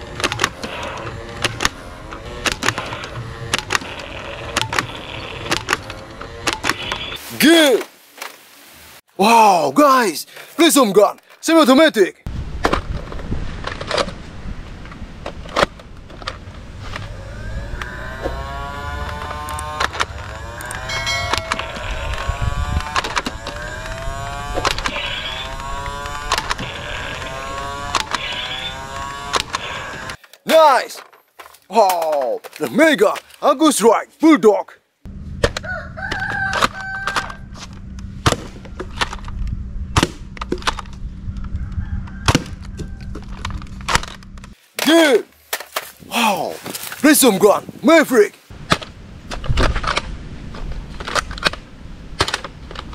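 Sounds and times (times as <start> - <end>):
electric motor whirring: 0.0 - 7.2, 16.5 - 30.2
steady low hum: 14.2 - 30.2, 35.0 - 36.0, 37.2 - 44.6.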